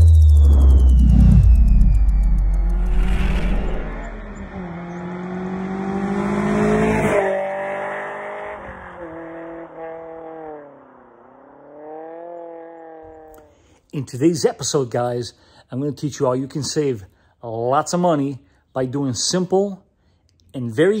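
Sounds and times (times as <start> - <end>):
vehicle engine revving: 0.0 - 13.5.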